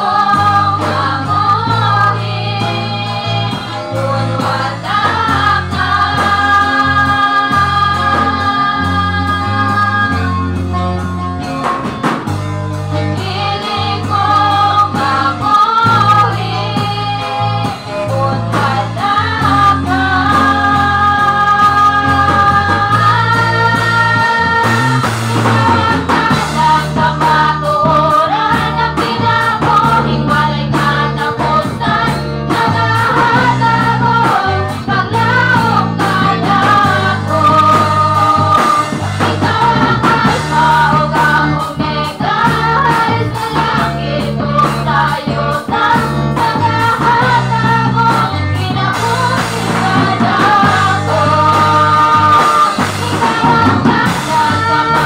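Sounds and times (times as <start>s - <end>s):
choir singing gospel song: 0.0s - 55.0s
instrumental accompaniment: 0.0s - 55.0s.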